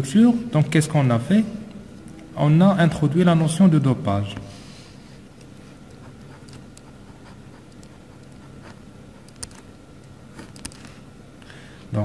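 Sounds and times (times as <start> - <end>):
pen scratching on paper: 5.6 - 9.7
sharp pen ticks: 6.2 - 9.7.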